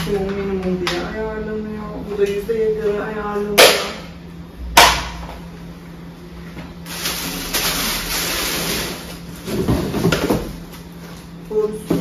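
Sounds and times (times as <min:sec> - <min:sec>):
plastic wrapping rustling: 0:06.8 - 0:10.4.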